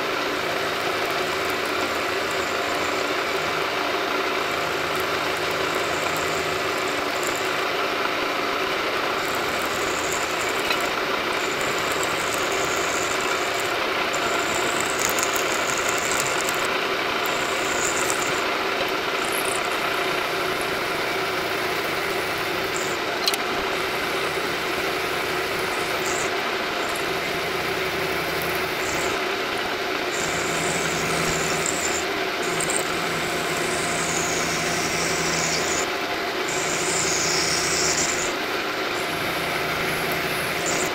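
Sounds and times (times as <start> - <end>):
milling machine hum: 0.0 - 40.9
high-pitched metal cutting noise: 19.2 - 29.3, 30.1 - 38.4, 39.0 - 40.9.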